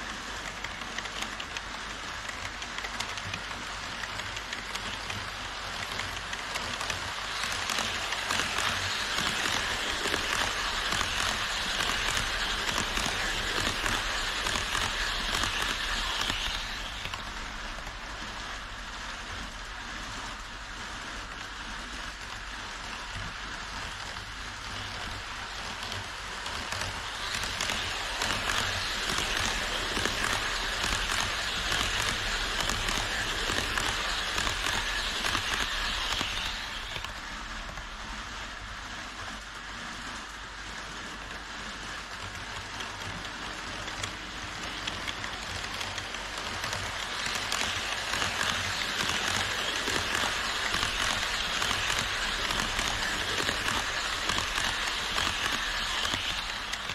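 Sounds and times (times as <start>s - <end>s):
model train wheels rattling on rails: 0.0s - 56.9s.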